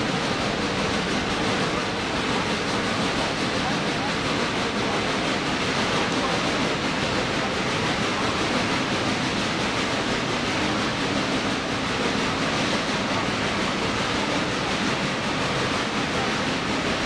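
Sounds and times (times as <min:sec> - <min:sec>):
steam locomotive working: 0:00.0 - 0:17.0
train wheels running on rails: 0:00.0 - 0:17.0.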